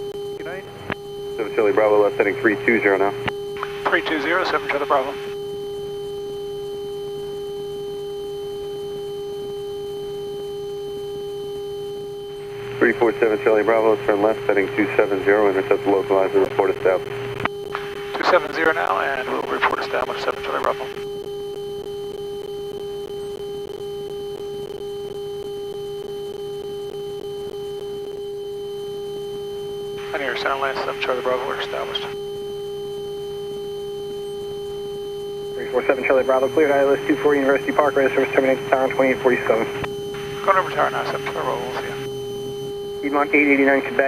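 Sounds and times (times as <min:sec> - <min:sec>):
airplane cockpit drone: 0:00.0 - 0:44.0
faint regular pulses: 0:00.0 - 0:44.0
high-pitched electrical hum: 0:00.0 - 0:44.0.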